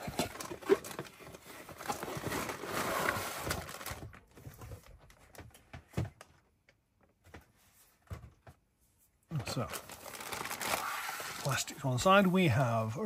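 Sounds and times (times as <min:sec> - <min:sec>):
plastic wrapping crinkling: 0:09.4 - 0:11.6.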